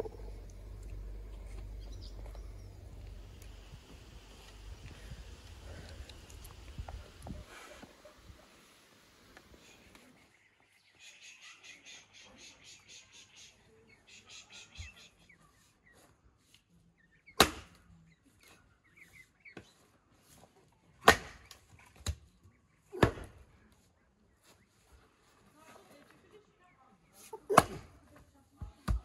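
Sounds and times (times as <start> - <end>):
bird chirping rapidly: 0.0 - 3.6, 10.7 - 15.4
axe splitting log on block: 17.4 - 17.8, 21.0 - 22.2, 23.0 - 23.4, 27.5 - 27.9.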